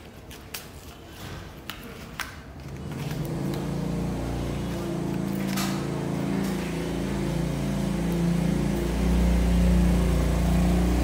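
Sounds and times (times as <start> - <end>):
low engine hum: 2.8 - 11.0.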